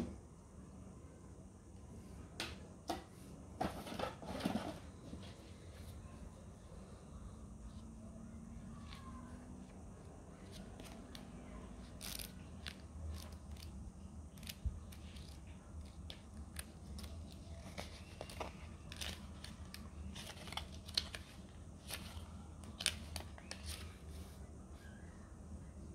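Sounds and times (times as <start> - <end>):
booklet pages flicking: 10.5 - 24.0.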